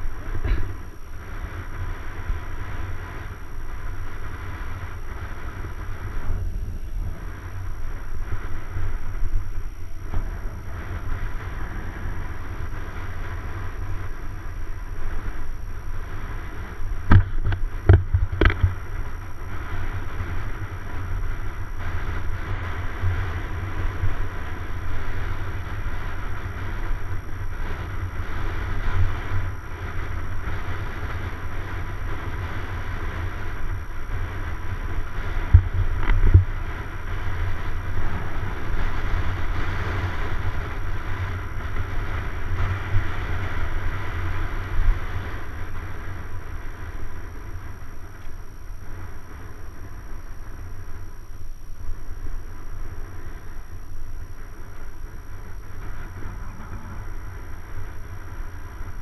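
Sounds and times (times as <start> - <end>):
bike tyre noise on pavement: 0.0 - 59.0
wind rush on microphone: 0.0 - 59.0.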